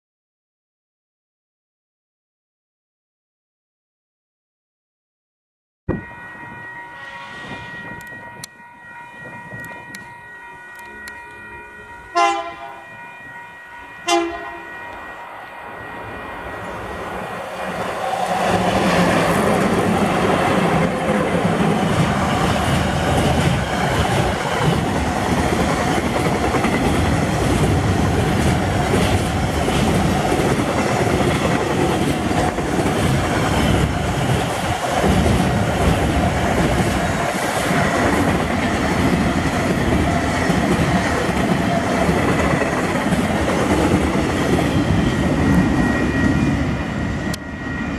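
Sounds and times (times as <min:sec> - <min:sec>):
train horn blasts: 0:05.9 - 0:16.9
train passing at speed: 0:05.9 - 0:47.9.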